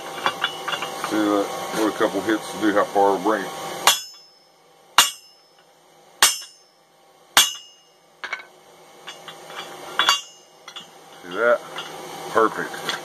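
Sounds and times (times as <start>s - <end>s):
hammer striking steel die: 3.9s - 4.4s, 5.0s - 5.5s, 6.2s - 6.7s, 7.4s - 8.4s.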